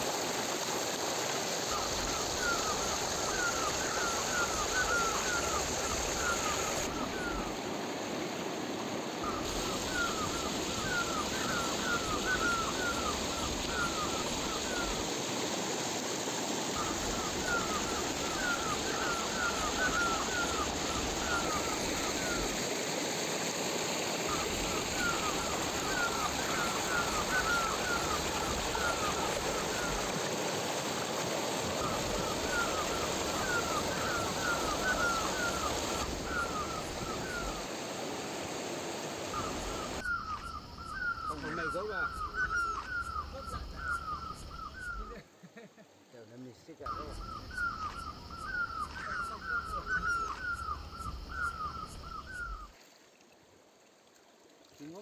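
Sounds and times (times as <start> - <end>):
river water rushing: 0.0 - 40.0.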